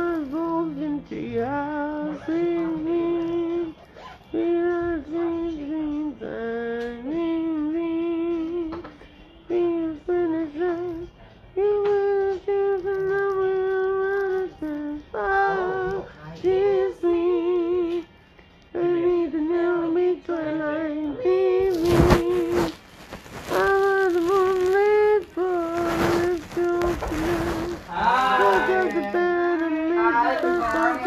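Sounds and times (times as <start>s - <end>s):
person singing unaccompanied: 0.0s - 31.0s.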